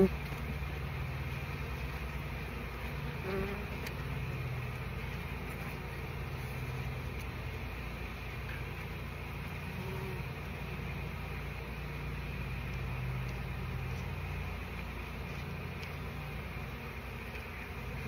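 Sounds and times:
honey bees buzzing: 0.0 - 18.0
single bee buzzing close: 1.3 - 4.2, 9.5 - 10.8.

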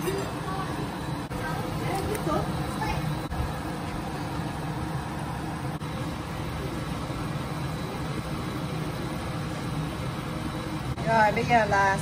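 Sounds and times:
stovetop burner rumbling: 0.0 - 12.0
curry boiling in a wok: 2.4 - 11.0.

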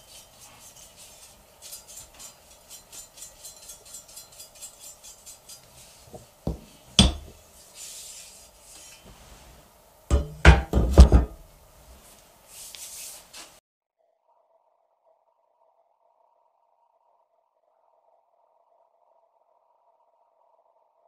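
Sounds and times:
soft brushing: 0.0 - 9.8, 11.3 - 13.6.

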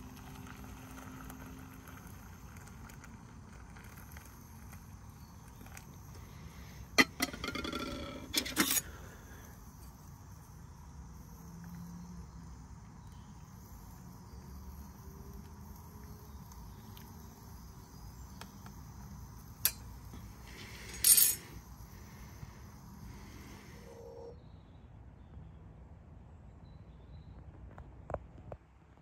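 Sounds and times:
insect chirring: 0.0 - 24.4.

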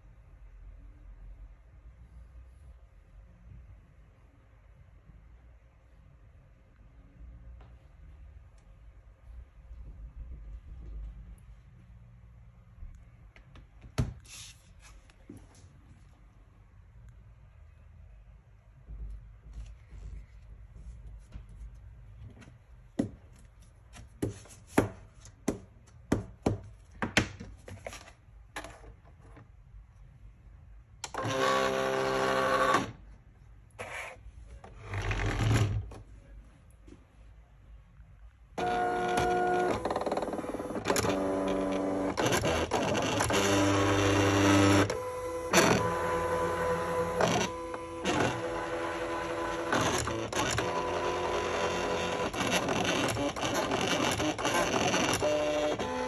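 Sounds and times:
cutting plotter motors whining: 31.1 - 32.9, 38.6 - 56.0.

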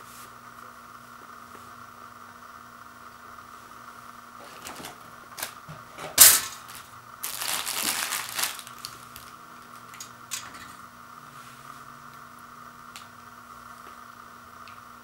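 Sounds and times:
foil pouch crinkling: 6.2 - 9.9.

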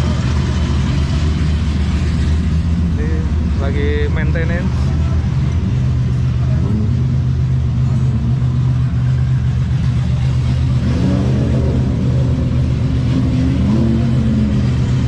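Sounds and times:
engine idling: 0.0 - 10.8.

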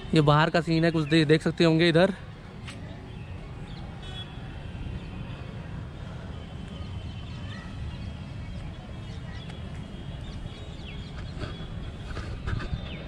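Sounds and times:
birds chirping: 7.1 - 13.0.

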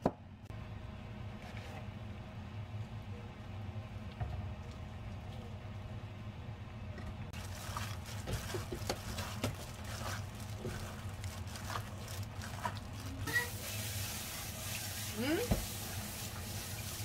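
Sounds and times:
wet squishing of food: 7.3 - 15.9
plastic glove crinkling: 7.4 - 15.2.

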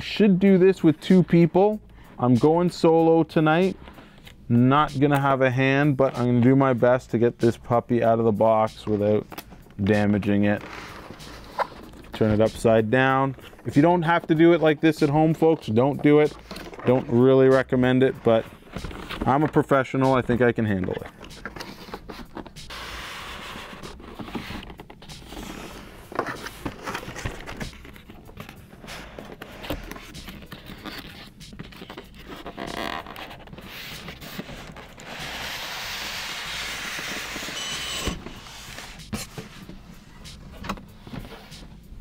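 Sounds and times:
cardboard flaps rustling: 9.2 - 41.8
styrofoam scraping cardboard: 9.9 - 40.3.

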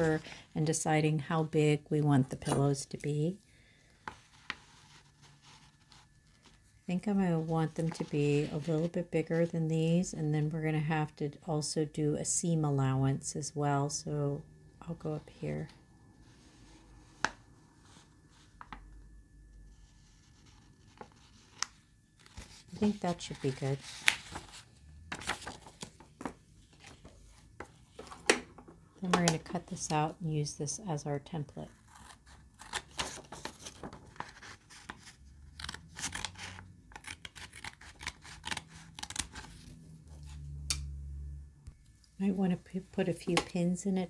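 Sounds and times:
scissors cutting paper: 35.6 - 39.5.

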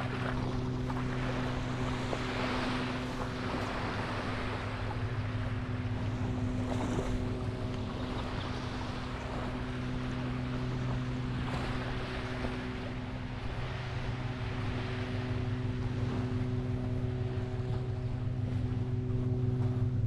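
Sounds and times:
engine running steadily: 0.0 - 20.0
surf washing: 0.0 - 20.0
wind: 0.0 - 20.0.

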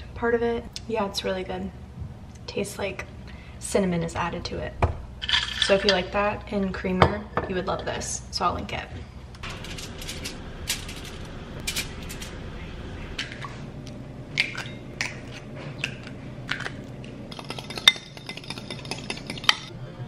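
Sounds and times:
eggs cracking into bowl: 13.2 - 19.7
eggs beaten against bowl: 17.3 - 19.7.

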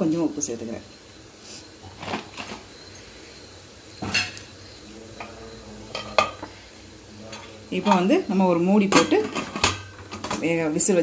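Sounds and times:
metal utensils clinking on pot: 5.9 - 6.5, 7.3 - 8.2, 8.8 - 10.6.

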